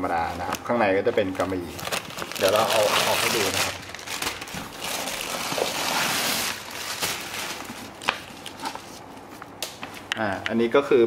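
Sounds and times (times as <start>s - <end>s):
plastic stuffing crinkling: 0.3s - 9.0s.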